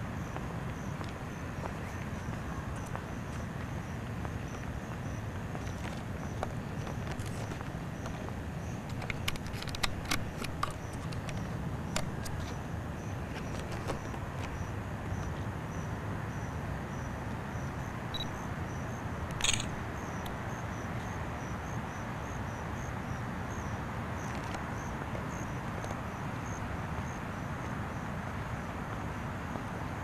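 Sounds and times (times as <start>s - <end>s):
cricket chirping: 0.0s - 30.0s
sharp click: 19.3s - 20.4s.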